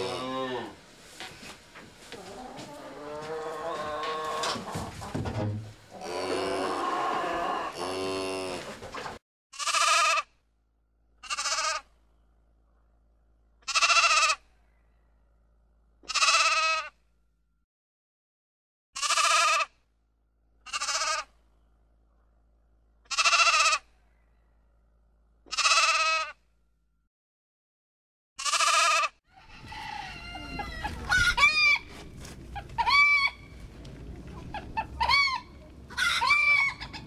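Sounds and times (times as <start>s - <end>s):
cow mooing: 0.0s - 0.8s, 6.0s - 8.7s
sheep bleating: 9.6s - 10.2s, 11.2s - 11.8s, 13.7s - 14.4s, 16.0s - 16.9s, 19.0s - 19.7s, 20.7s - 21.3s, 23.1s - 23.8s, 25.5s - 26.3s, 28.4s - 29.1s.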